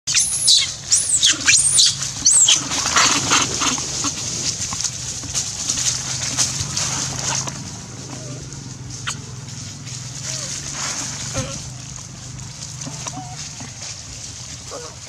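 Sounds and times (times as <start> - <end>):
baby monkey shrieking: 0.1 - 3.7, 13.1 - 13.5
rustling in dry leaves: 0.1 - 15.0.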